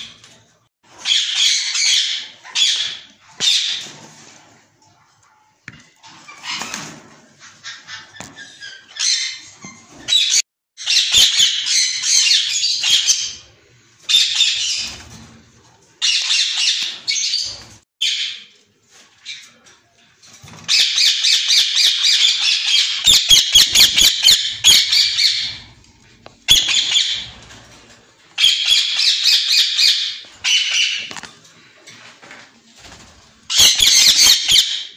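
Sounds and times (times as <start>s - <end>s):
parakeets squawking: 20.8s - 25.8s, 26.4s - 27.4s, 28.4s - 31.1s, 33.5s - 34.9s.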